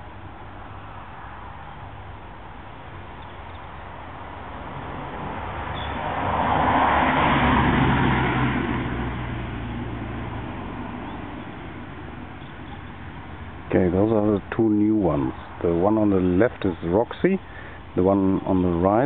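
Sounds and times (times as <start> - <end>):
road vehicle passing: 0.0 - 19.0.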